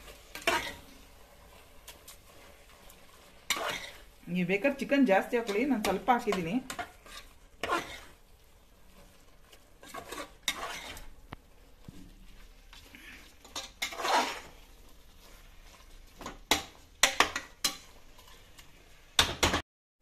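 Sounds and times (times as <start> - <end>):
metal ladle scraping pot: 0.0 - 4.2, 5.2 - 8.2, 8.9 - 11.2, 12.8 - 18.6.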